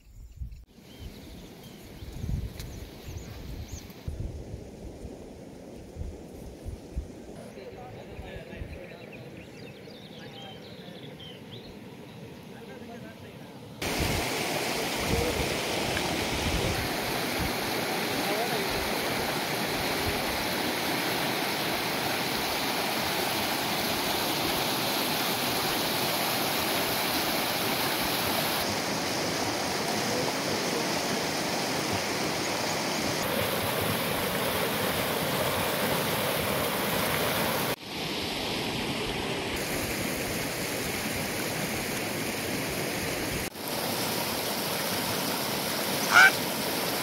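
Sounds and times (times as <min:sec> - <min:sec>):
floodwater rushing over stones: 0:13.8 - 0:47.0.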